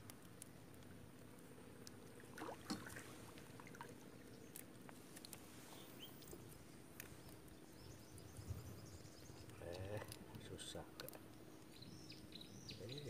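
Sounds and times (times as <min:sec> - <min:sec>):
soft clicks of a net: 0:00.0 - 0:07.5, 0:09.4 - 0:11.4
small water sounds: 0:00.0 - 0:13.0.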